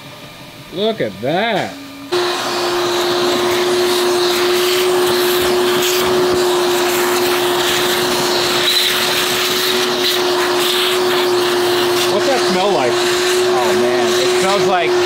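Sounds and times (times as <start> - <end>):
shop vacuum running: 0.0 - 15.0.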